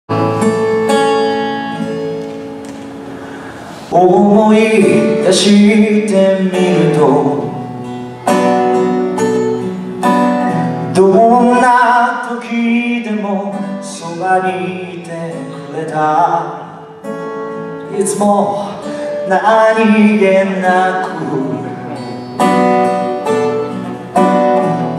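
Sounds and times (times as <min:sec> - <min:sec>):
strummed acoustic guitar: 0:00.1 - 0:24.9
man singing: 0:03.9 - 0:08.6, 0:10.1 - 0:16.9, 0:17.8 - 0:22.6.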